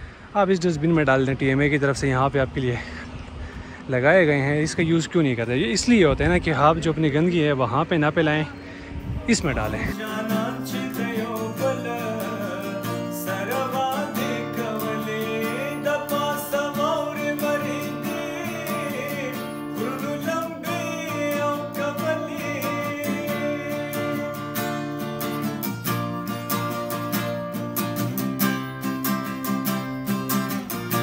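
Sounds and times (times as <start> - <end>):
strummed acoustic guitar: 9.6 - 31.0
person singing: 9.7 - 25.0.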